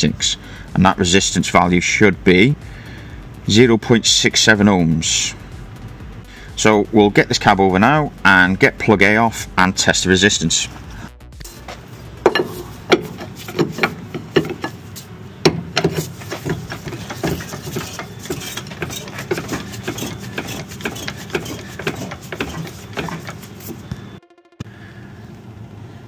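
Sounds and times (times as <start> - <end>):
hydraulic pump clicks and knocks: 12.2 - 14.8, 15.4 - 23.8.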